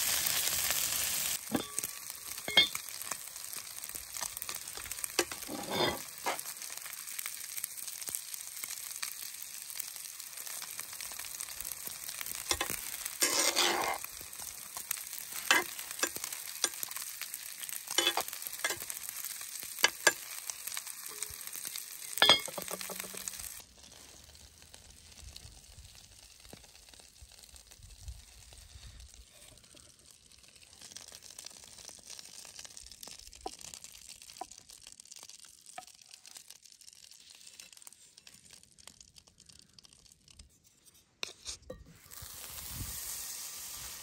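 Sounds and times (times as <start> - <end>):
vegetables sizzling in a pot: 0.0 - 39.8, 41.0 - 44.0
metal spoon scraping a pot: 4.6 - 6.4, 12.5 - 14.1, 15.4 - 16.8, 17.9 - 18.9, 41.2 - 41.9.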